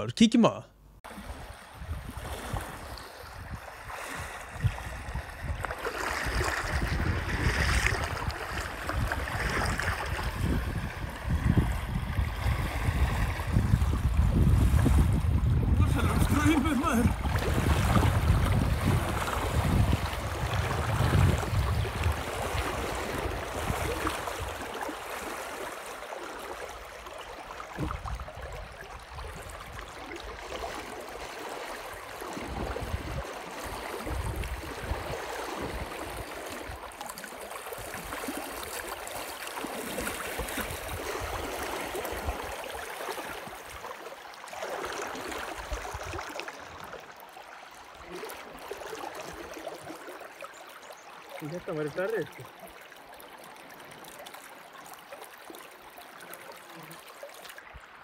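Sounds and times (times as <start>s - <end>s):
wind rumble on microphone: 1.3s - 24.7s, 27.8s - 30.0s, 32.4s - 36.8s, 45.6s - 46.8s
water splashing around legs: 2.2s - 12.2s, 12.9s - 57.6s.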